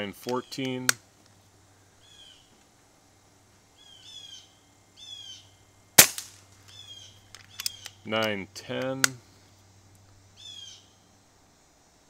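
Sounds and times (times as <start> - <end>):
bird chirping: 1.4 - 2.6, 3.7 - 5.7, 6.6 - 9.5, 10.3 - 11.1
air rifle shot: 6.0 - 6.5.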